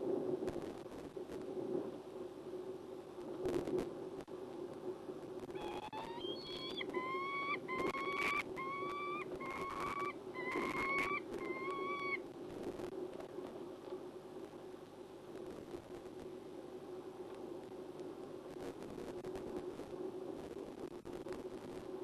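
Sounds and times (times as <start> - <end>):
falcon wailing calls: 5.6 - 12.2.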